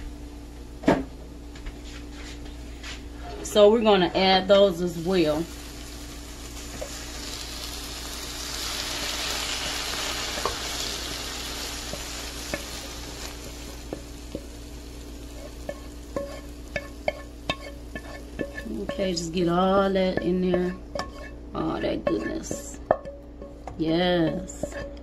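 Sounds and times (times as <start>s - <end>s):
onions sizzling in oil: 3.9s - 25.0s
spoon scraping and knocking on pan: 10.3s - 10.7s, 11.8s - 14.5s, 15.3s - 25.0s.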